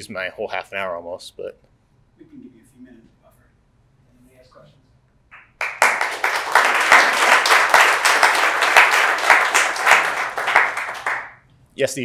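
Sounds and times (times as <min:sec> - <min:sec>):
audience applauding: 0:05.4 - 0:11.4.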